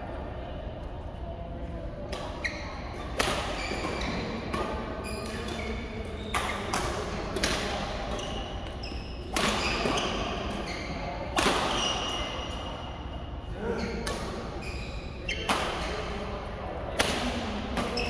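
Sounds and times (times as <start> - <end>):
sneakers squeaking on court: 2.3 - 6.9, 7.6 - 16.1
rackets striking shuttlecock: 3.0 - 10.7, 11.3 - 12.3.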